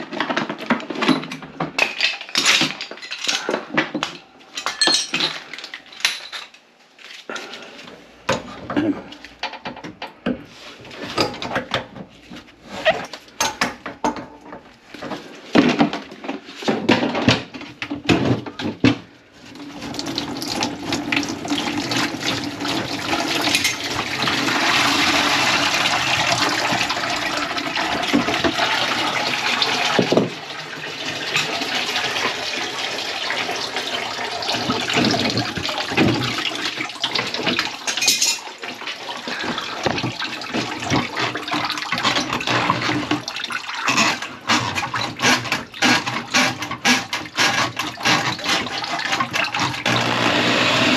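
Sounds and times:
water rushing into a pan: 0:19.6 - 0:37.9.

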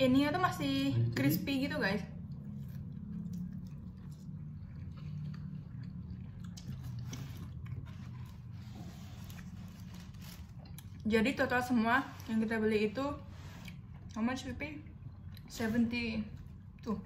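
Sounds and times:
people chewing crunchy food: 0:02.2 - 0:12.6.

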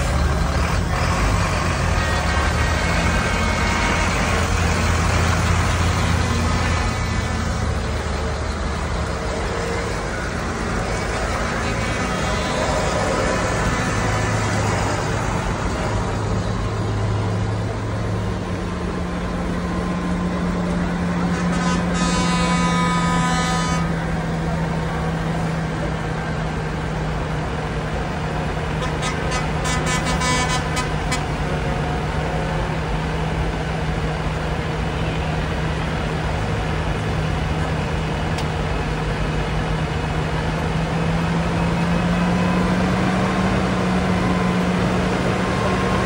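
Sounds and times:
tractor diesel engine running: 0:00.0 - 0:46.0
truck engines: 0:00.0 - 0:46.0.

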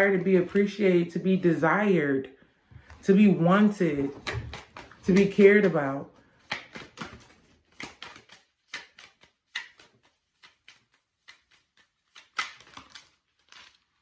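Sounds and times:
cards shuffling snaps and taps: 0:04.1 - 0:13.7.

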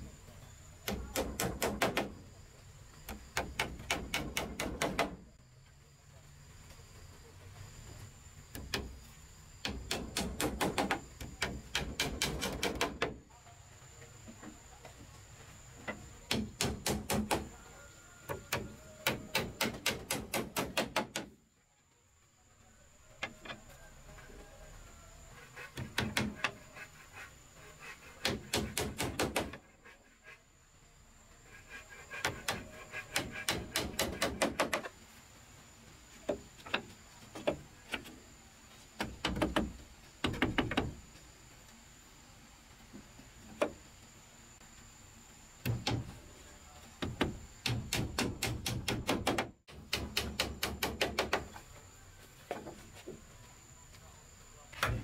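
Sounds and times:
hammer nailing wood: 0:00.8 - 0:02.2, 0:03.1 - 0:05.2, 0:09.6 - 0:13.2, 0:16.3 - 0:17.6, 0:18.3 - 0:21.4, 0:25.6 - 0:26.6, 0:28.0 - 0:29.7, 0:32.1 - 0:34.9, 0:39.0 - 0:41.0, 0:45.6 - 0:46.2, 0:47.0 - 0:51.6.

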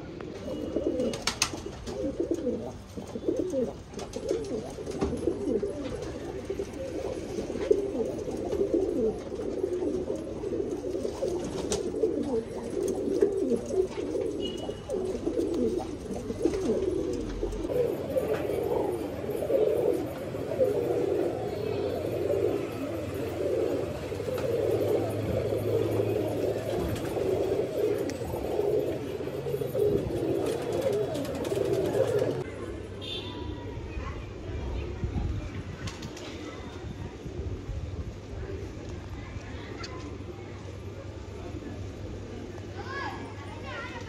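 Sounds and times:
pigeons cooing: 0:00.0 - 0:33.2.

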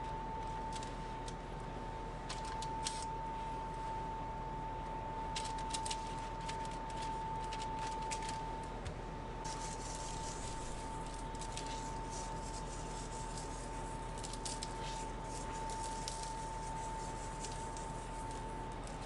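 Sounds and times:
steady high-pitched hum: 0:00.0 - 0:19.0
paper and foil crinkling: 0:05.3 - 0:08.4, 0:09.5 - 0:19.0.

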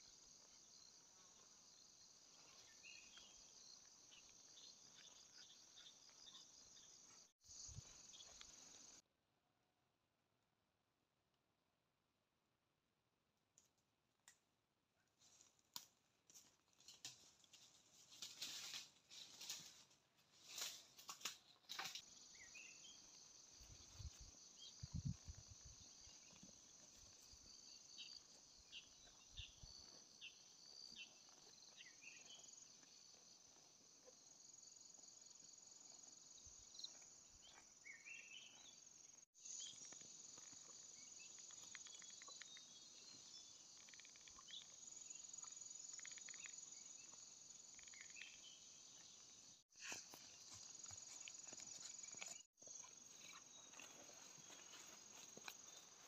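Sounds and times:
high insect chorus: 0:00.0 - 0:09.0, 0:17.0 - 0:56.0
sticks and leaves rustling: 0:15.2 - 0:22.0.

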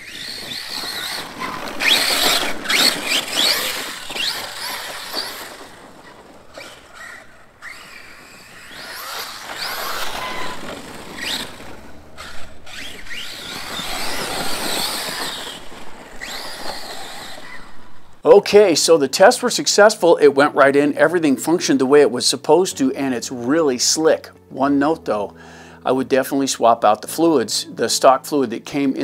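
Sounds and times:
rc car electric motor whining: 0:00.0 - 0:18.2.

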